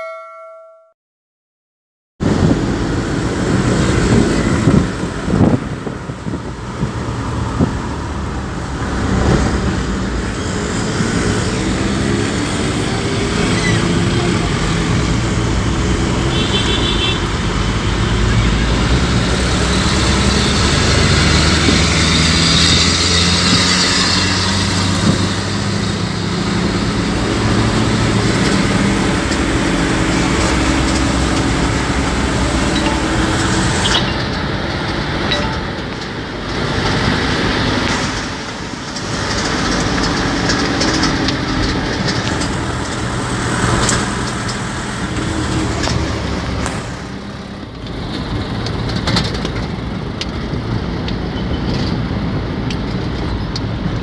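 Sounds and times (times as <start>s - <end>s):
bus engine and road drone: 2.2s - 54.0s
short high beeps: 32.7s - 34.0s, 35.3s - 35.8s.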